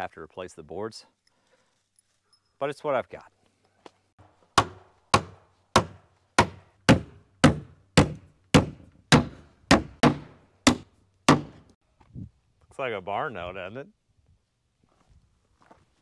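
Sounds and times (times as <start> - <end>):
hammer driving nails into wood: 4.6 - 11.7.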